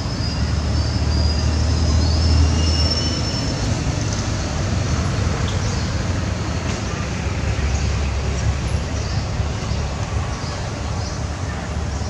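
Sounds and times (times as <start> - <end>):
vehicle engine rumble: 3.5 - 12.0.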